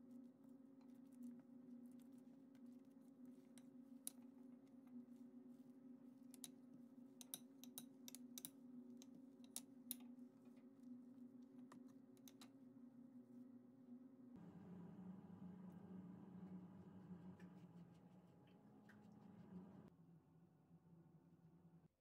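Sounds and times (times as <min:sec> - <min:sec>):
steady low hum: 0:08.3 - 0:19.9.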